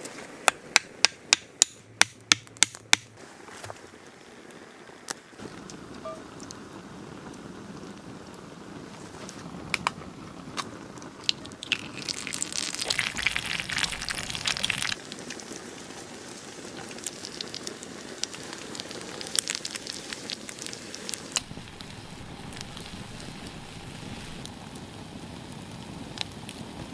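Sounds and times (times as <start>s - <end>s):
campfire crackling and popping: 0.0s - 3.2s, 3.8s - 26.9s
egg sizzling in a pan: 11.1s - 26.9s.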